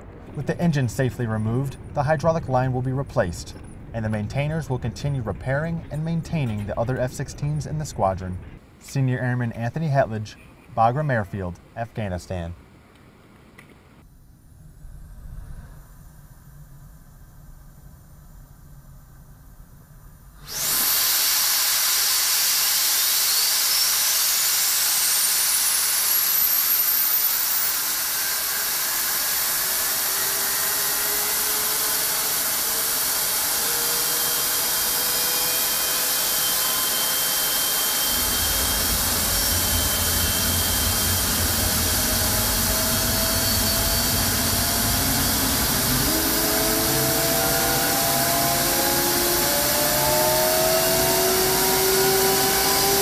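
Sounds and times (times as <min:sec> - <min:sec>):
deep engine rumble: 0:00.0 - 0:08.6, 0:38.1 - 0:48.7
jet engine whine spooling up: 0:20.4 - 0:53.0
loud rushing hiss: 0:20.4 - 0:53.0.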